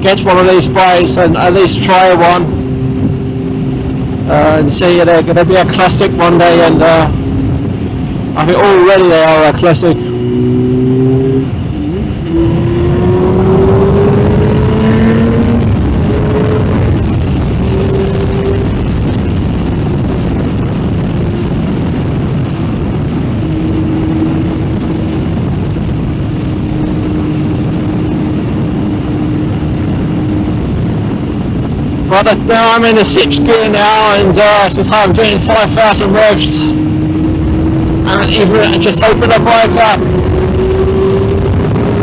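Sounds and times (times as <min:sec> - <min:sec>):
motorcycle engine accelerating: 0:00.0 - 0:42.0
wind and road noise: 0:00.0 - 0:42.0.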